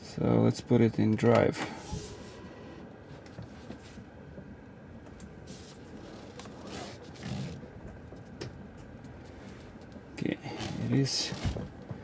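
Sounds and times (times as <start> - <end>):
car interior hum: 1.0 - 3.9.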